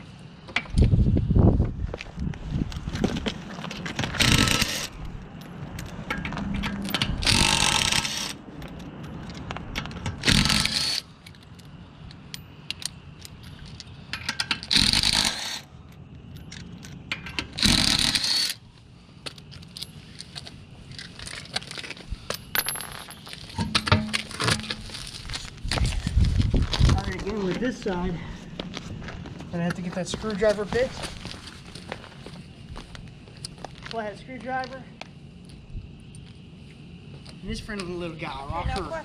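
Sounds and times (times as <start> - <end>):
handling noise: 1.6 - 18.1, 19.2 - 34.7
metal tools clinking and scraping: 4.1 - 15.6, 19.3 - 25.5.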